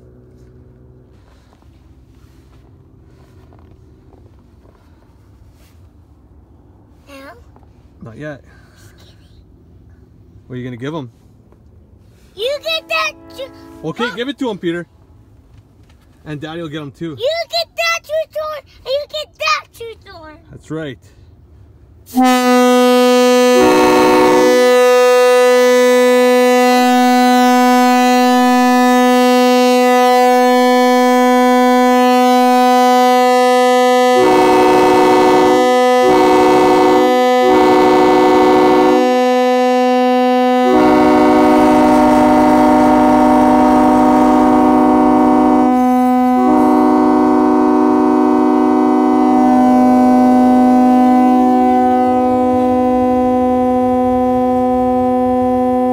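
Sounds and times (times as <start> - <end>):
train horn chord: 12.1 - 14.6, 22.1 - 55.9
second horn chord blasts: 12.4 - 14.7, 22.1 - 55.9.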